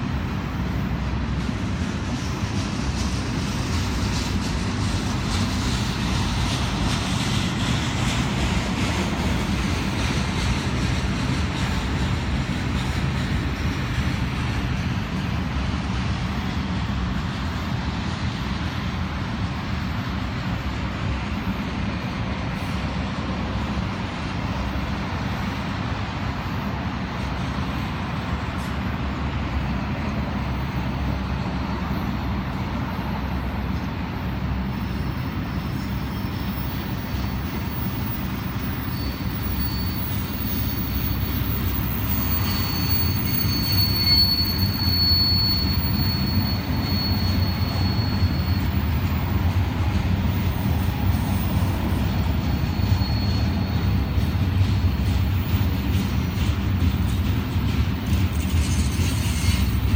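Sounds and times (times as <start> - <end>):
freight train rumbling past: 0.0 - 59.9
high wheel squeal: 24.8 - 59.9.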